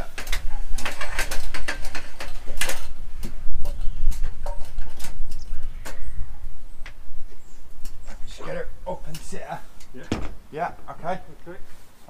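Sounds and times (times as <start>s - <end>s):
low rumble: 2.9s - 11.5s
panel and ladder knocks: 10.0s - 10.4s.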